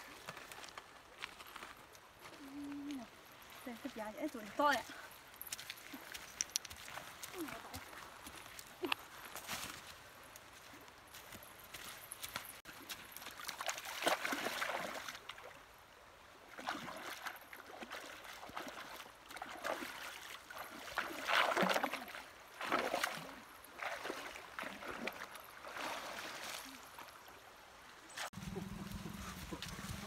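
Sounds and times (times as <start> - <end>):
feet splashing through water: 3.5 - 9.9, 12.0 - 15.6, 16.4 - 27.4.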